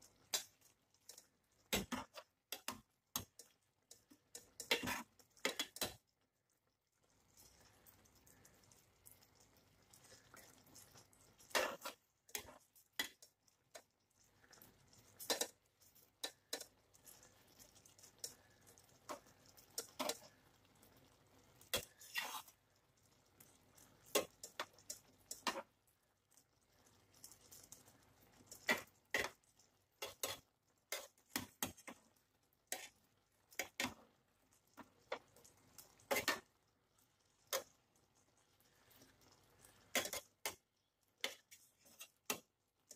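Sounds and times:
tongs tapping frying pan: 0:00.0 - 0:42.9.

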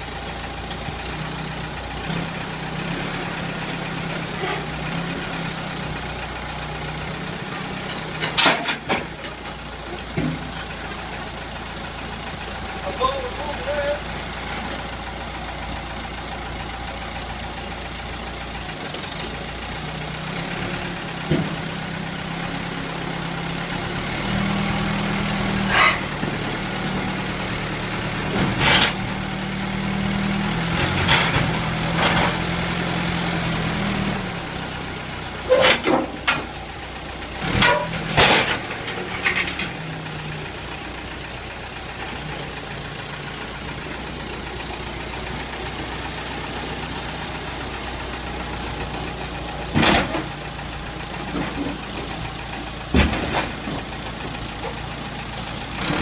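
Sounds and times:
backhoe diesel engine running: 0:00.0 - 0:56.0.

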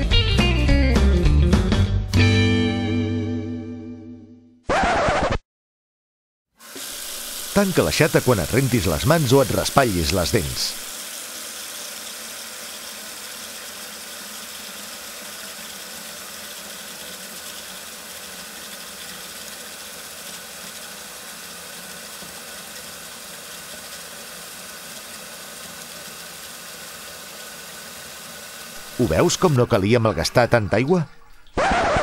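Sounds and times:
steady hiss: 0:06.6 - 0:29.9.

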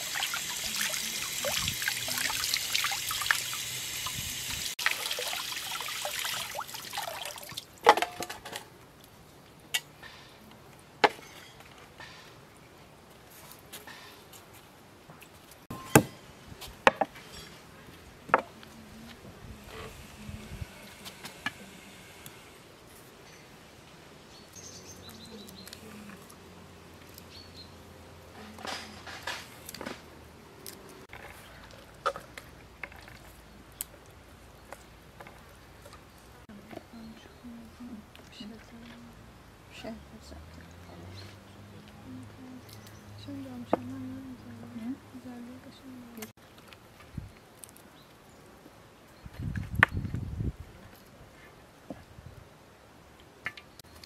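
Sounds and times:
tap water running and splashing: 0:00.0 - 0:07.7.

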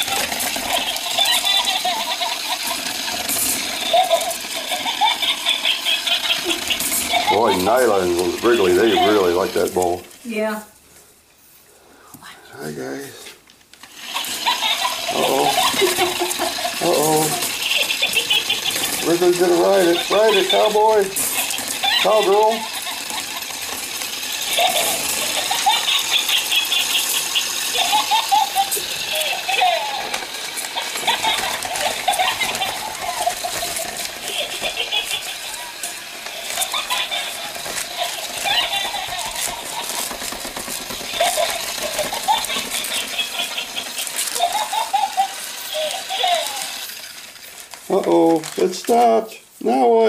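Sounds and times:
toy motor whirring and rattling: 0:00.0 - 0:10.7, 0:13.7 - 0:49.9
puppies whining: 0:14.1 - 0:46.9.

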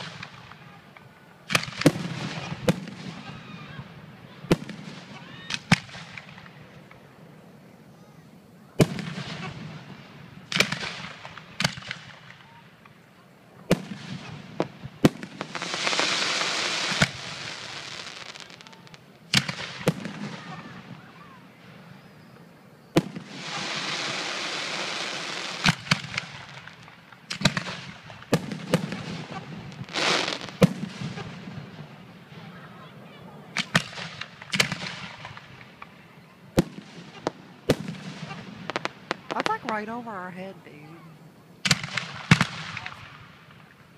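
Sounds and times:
hiss of sparkling stars: 0:15.4 - 0:18.8, 0:23.2 - 0:25.6.

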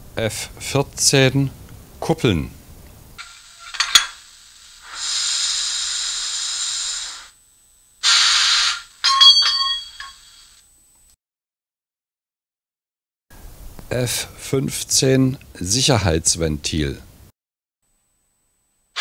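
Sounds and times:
steam hiss: 0:03.2 - 0:10.7
ringing metallic clanks: 0:09.0 - 0:10.3.

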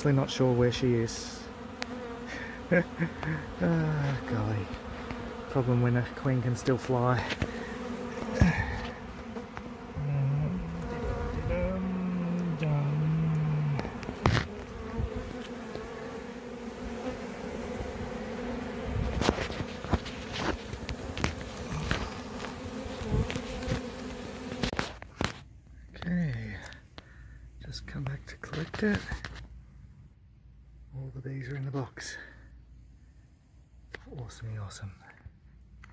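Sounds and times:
bees buzzing: 0:00.0 - 0:24.9.

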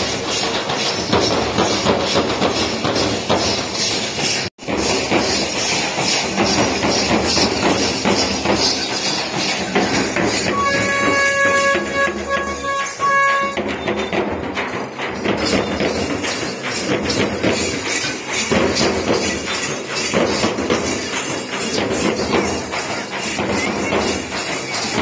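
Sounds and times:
drums with jingling: 0:00.0 - 0:25.0
wind instrument blasts: 0:10.4 - 0:14.2.

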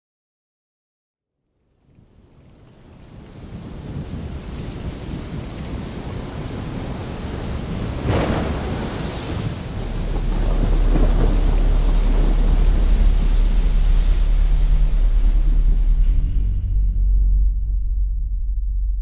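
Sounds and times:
rain: 0:01.6 - 0:16.3
thunder rumble: 0:01.9 - 0:18.6
thunder crack: 0:03.3 - 0:16.0
deep bass drone: 0:09.7 - 0:19.0.

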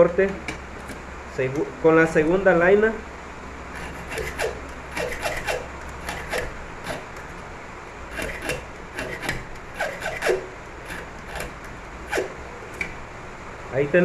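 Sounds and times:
hand file scraping metal key: 0:03.8 - 0:07.1, 0:08.1 - 0:12.4.

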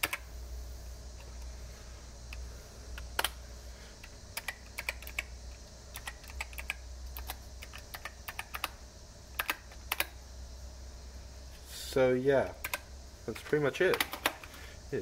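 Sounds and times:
keypad keystroke clicks: 0:00.0 - 0:00.2, 0:04.4 - 0:05.3, 0:05.9 - 0:08.8, 0:09.4 - 0:10.2, 0:13.9 - 0:14.5.

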